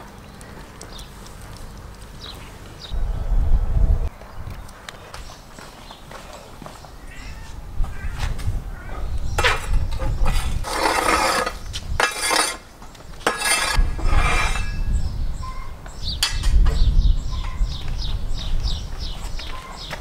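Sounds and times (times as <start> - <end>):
bird chirping: 0.0 - 3.4, 14.7 - 20.0
low rumble: 2.8 - 4.6.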